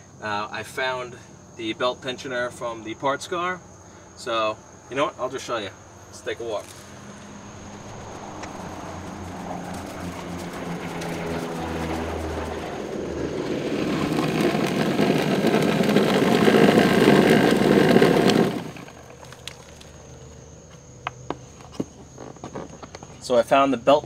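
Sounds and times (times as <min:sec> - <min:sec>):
vibratory tumbler running: 0:07.8 - 0:20.2.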